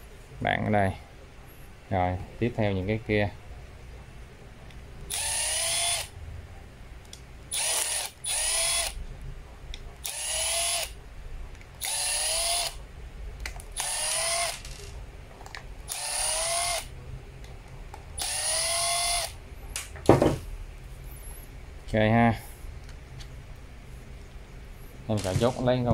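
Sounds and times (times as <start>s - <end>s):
cordless driver whirring: 5.1s - 6.1s, 7.5s - 9.0s, 10.0s - 10.9s, 11.8s - 12.8s, 13.8s - 14.9s, 15.9s - 16.9s, 18.2s - 19.4s.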